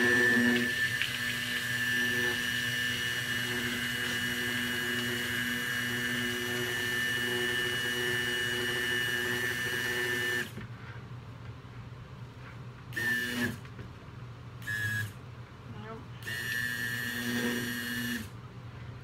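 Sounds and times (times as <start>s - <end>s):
stick blender whining: 0.0s - 10.5s.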